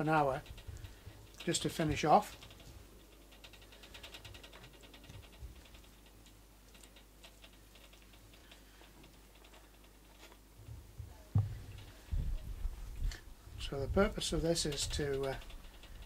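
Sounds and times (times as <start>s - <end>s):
brush ticking on wire rack: 0.0s - 16.0s
low thump: 11.0s - 12.5s.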